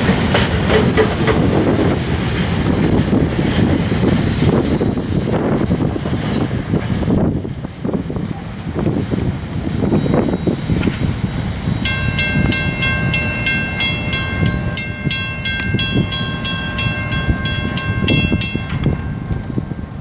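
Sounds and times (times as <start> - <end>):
railroad crossing bell ringing: 9.8 - 20.0
steady low rumble: 11.1 - 20.0.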